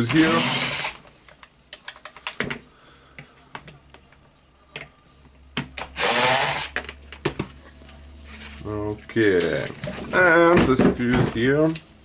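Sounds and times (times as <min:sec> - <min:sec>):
cordless drill spinning: 0:00.1 - 0:01.0, 0:06.0 - 0:06.8.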